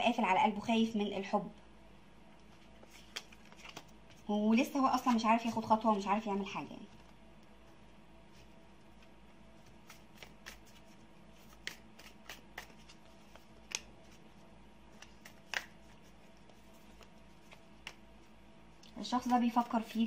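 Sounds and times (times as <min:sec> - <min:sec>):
faint steady hum: 0:00.0 - 0:20.0
cards clicking and snapping: 0:09.7 - 0:10.8, 0:11.4 - 0:13.9, 0:14.9 - 0:16.0, 0:16.9 - 0:18.0.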